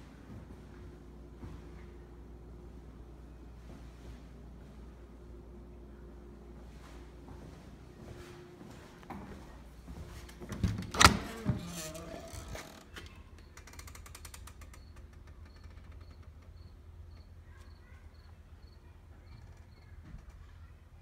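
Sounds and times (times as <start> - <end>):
low steady rumble: 0.0 - 13.4
door creaking on hinges: 10.3 - 16.7.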